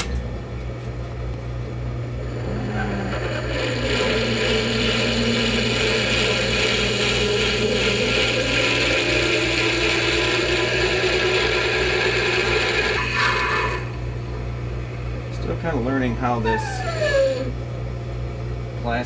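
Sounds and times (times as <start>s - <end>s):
lathe running with steady hum: 1.3s - 19.0s
drill boring into plastic: 2.4s - 13.9s.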